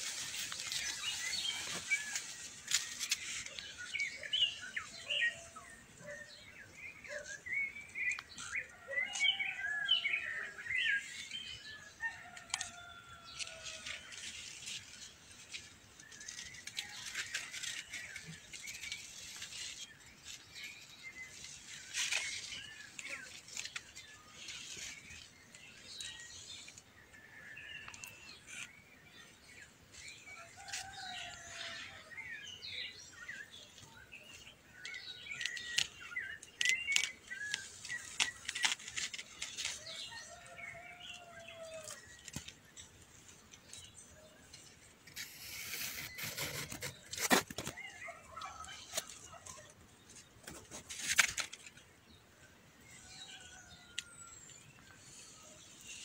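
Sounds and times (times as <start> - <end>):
corn leaves rustling: 0.0 - 6.1, 8.0 - 32.1, 33.0 - 51.9, 52.8 - 56.0
small birds chirping: 32.5 - 56.0.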